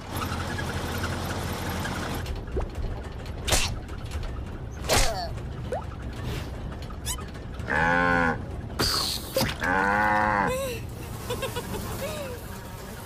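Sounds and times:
cartoon cow mooing: 9.6 - 10.6.

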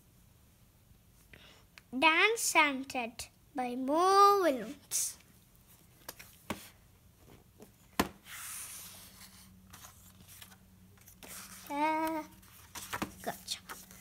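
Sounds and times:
paper rustling: 8.3 - 14.0.

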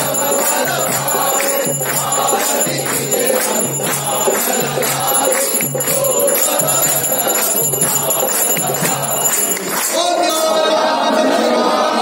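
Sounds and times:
small hand bell ringing: 0.0 - 9.9
devotional singing: 0.0 - 12.0.

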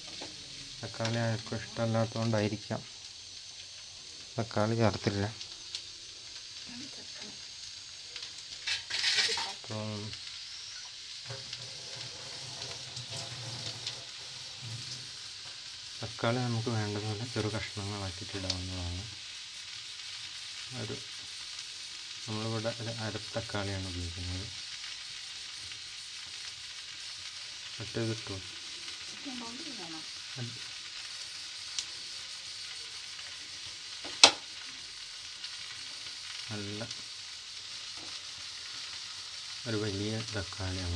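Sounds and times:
vegetables sizzling in hot oil: 0.0 - 40.9
faint ticks: 31.7 - 31.9.

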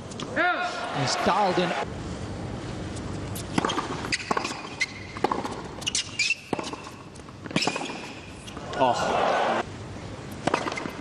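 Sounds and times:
crowd noise: 0.5 - 1.9, 8.6 - 9.7
shoe squeak on court: 3.4 - 8.7, 10.5 - 11.0
tennis ball hits and bounces: 3.4 - 8.8, 10.4 - 11.0.

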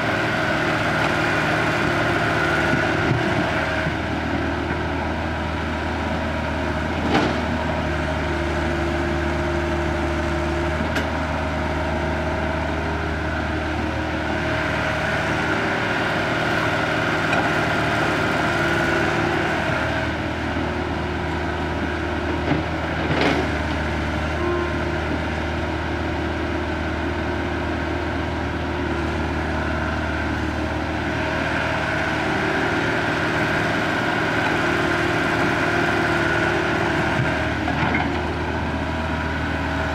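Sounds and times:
excavator engine and hydraulics: 0.0 - 39.9.

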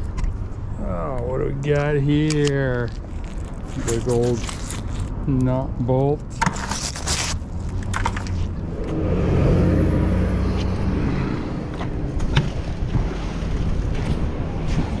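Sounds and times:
vehicle engine hum: 7.1 - 15.0.

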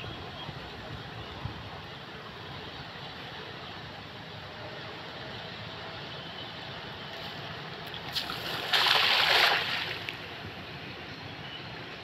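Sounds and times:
outdoor background hiss: 0.0 - 12.0
net splashing into water: 8.1 - 10.2.

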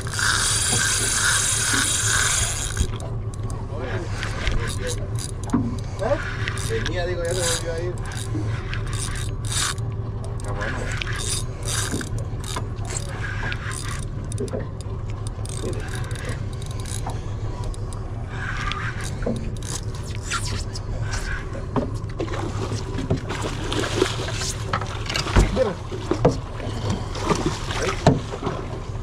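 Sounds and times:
fishing reel winding: 0.0 - 3.5, 4.2 - 20.8
boat engine running: 0.0 - 29.0.

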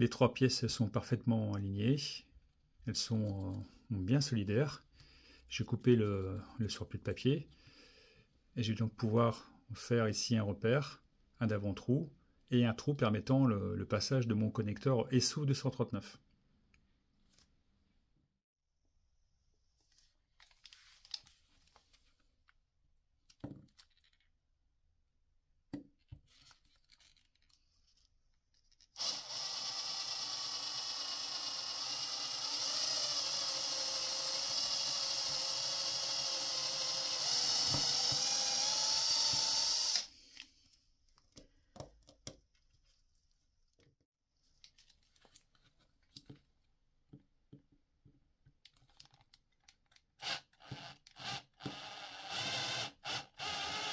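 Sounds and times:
electric drill drilling plastic pipe: 29.0 - 40.1, 50.2 - 53.9.

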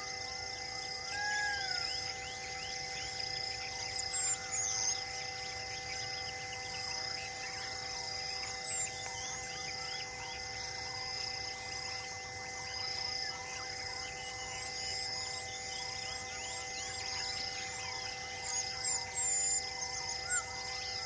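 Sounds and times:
insect buzz: 0.0 - 21.0
birds chirping: 1.6 - 21.0.

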